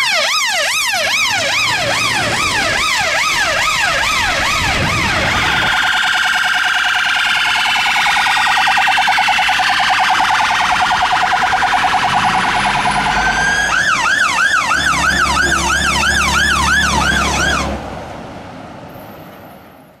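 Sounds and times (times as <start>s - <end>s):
emergency vehicle sirens: 0.0s - 20.0s.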